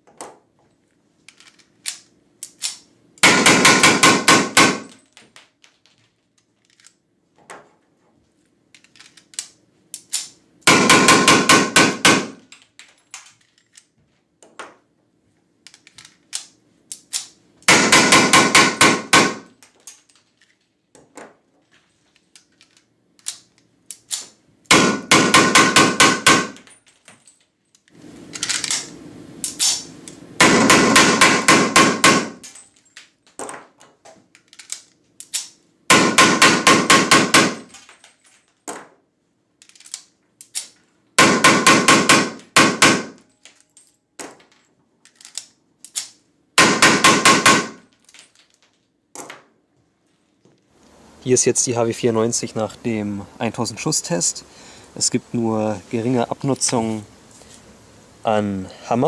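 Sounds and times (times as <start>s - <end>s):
blank pistol rapid shots: 3.2s - 4.9s, 10.7s - 12.4s, 17.7s - 19.5s, 24.7s - 26.6s, 30.4s - 32.4s, 35.9s - 37.7s, 41.2s - 43.2s, 46.6s - 47.8s.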